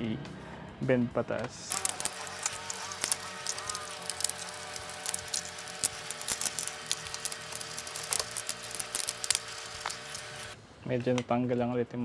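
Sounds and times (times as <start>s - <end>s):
plastic toy parts clicking: 1.7s - 10.6s.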